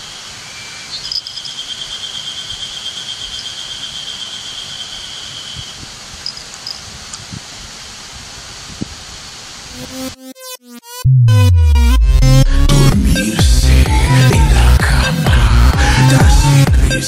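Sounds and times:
cricket trilling: 0:00.0 - 0:06.9.

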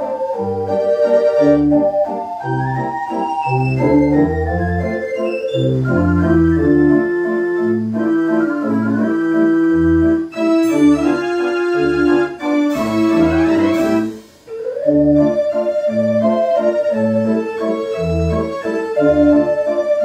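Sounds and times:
dance organ playing a tune: 0:00.0 - 0:20.0.

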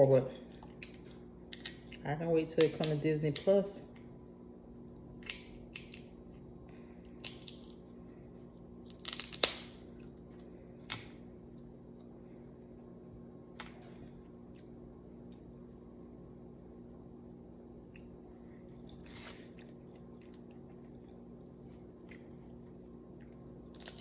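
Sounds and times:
faint steady hum: 0:00.0 - 0:24.0
crab shells cracking: 0:00.8 - 0:02.0, 0:05.2 - 0:06.1, 0:07.1 - 0:07.8, 0:08.8 - 0:10.4, 0:23.7 - 0:24.0.

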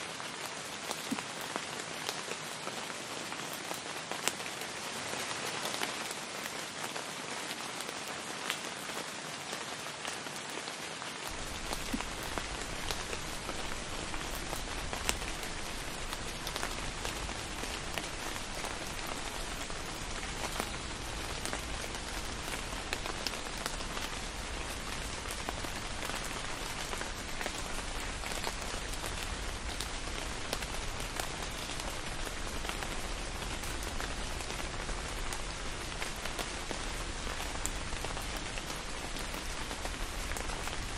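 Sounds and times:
rain pattering: 0:00.0 - 0:40.9.

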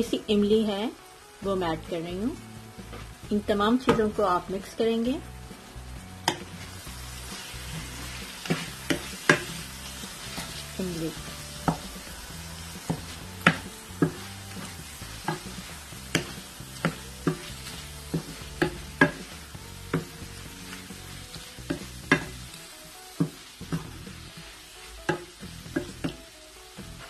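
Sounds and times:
oil sizzling in frying pan: 0:00.0 - 0:27.0
wooden spatula knocking pan: 0:06.2 - 0:06.5, 0:07.8 - 0:09.6, 0:12.8 - 0:20.3, 0:21.6 - 0:22.5.

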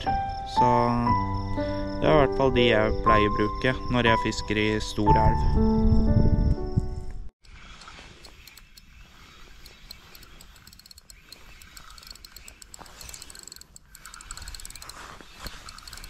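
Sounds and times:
fishing reel clicking: 0:07.4 - 0:16.0.

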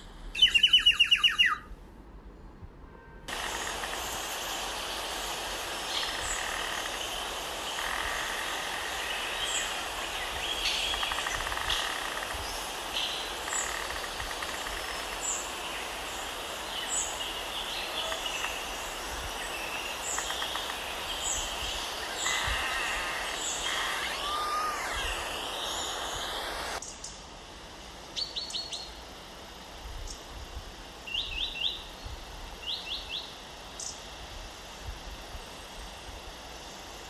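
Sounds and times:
steady background hiss: 0:00.0 - 0:37.0
small birds chirping: 0:00.4 - 0:01.7, 0:03.3 - 0:27.2.

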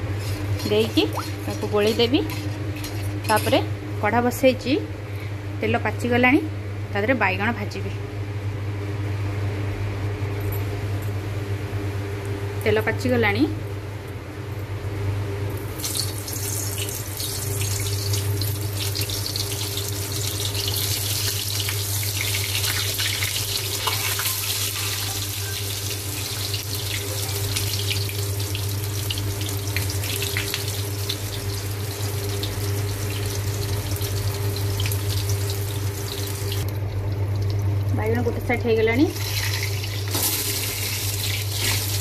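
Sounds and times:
vegetables sizzling in hot oil: 0:15.8 - 0:36.6, 0:39.1 - 0:42.0.

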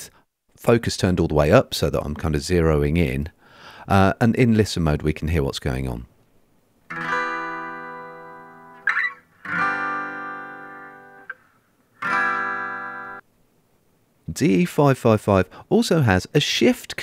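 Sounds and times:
acoustic guitar chords: 0:06.9 - 0:13.2
finger squeak on guitar strings: 0:08.8 - 0:09.3.

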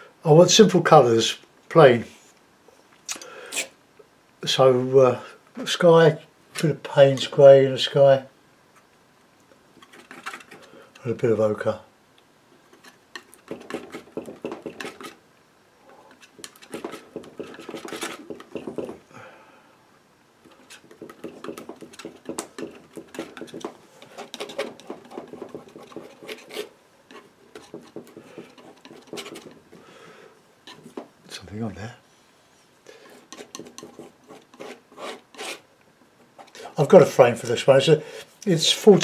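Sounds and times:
palette knife scraping and tapping: 0:09.8 - 0:11.1, 0:12.7 - 0:15.2, 0:16.1 - 0:19.0, 0:20.4 - 0:29.8, 0:30.7 - 0:31.1, 0:33.1 - 0:35.6.

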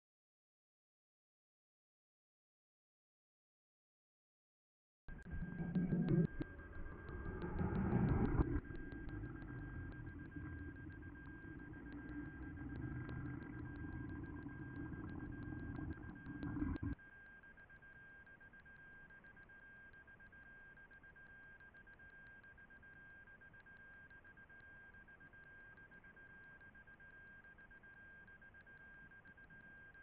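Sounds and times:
muffled low noise: 0:05.1 - 0:17.0.

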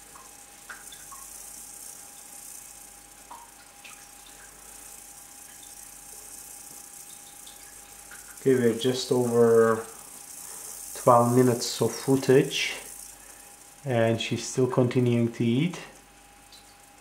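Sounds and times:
faint steady hiss: 0:00.0 - 0:17.0
thin steady tone: 0:00.0 - 0:17.0.

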